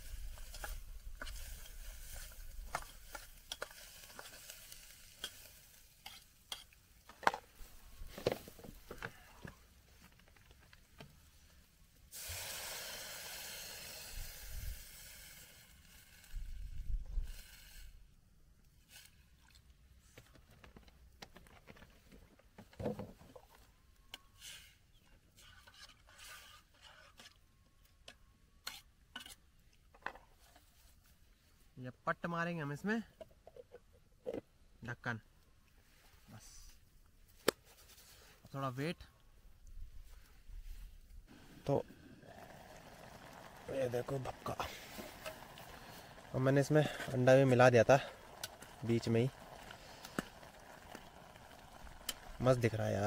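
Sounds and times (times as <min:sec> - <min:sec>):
vegetables frying: 0:00.0 - 0:06.6, 0:41.3 - 0:53.0
water hissing in hot pot: 0:00.0 - 0:06.7, 0:12.0 - 0:18.1, 0:41.3 - 0:53.0.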